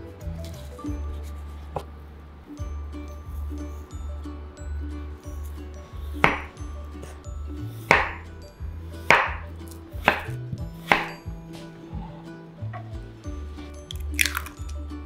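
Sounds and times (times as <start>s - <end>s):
knife cutting on wooden board: 10.0s - 11.2s.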